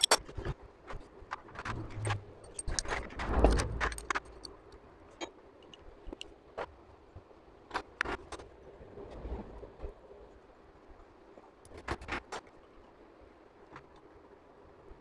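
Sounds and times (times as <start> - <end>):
metallic clicks of small tools: 0.0 - 0.3, 2.0 - 6.3.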